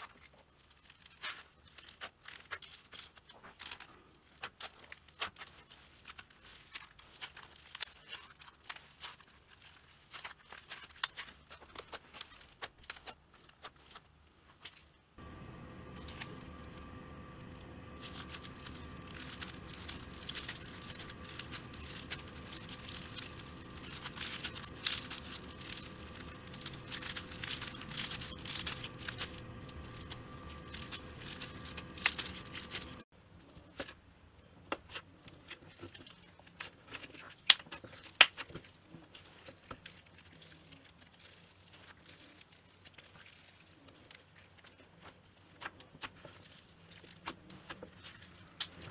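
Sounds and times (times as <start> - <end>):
slime crackling and popping: 0.0 - 33.1, 34.7 - 48.9
steady hum: 15.2 - 33.1.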